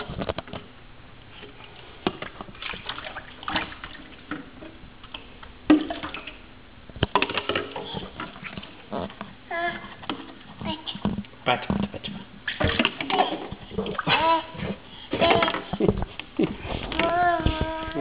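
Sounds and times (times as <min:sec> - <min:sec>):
water splashing and sloshing: 0:01.3 - 0:17.8.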